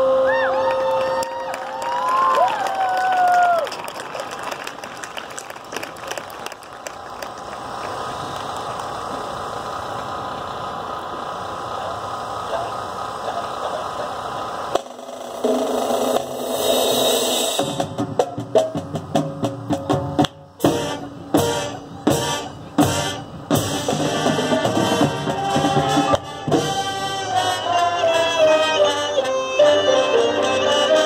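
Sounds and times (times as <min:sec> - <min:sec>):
marching band playing: 0:14.7 - 0:31.0.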